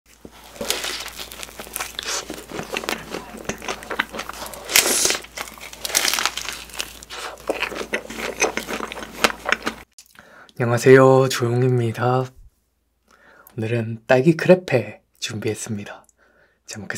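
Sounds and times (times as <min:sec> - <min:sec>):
biting and chewing: 0:00.1 - 0:10.2.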